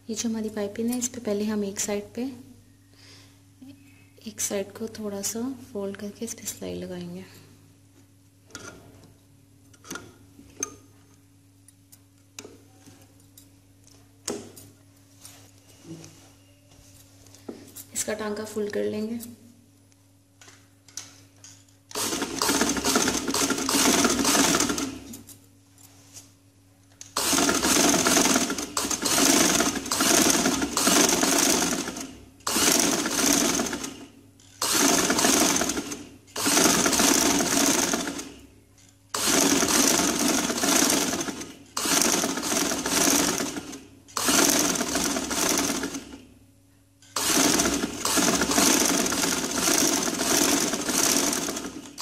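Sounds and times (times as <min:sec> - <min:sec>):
sewing machine stitching: 0:21.9 - 0:25.1, 0:27.2 - 0:34.0, 0:34.6 - 0:38.3, 0:39.2 - 0:46.2, 0:47.1 - 0:52.0.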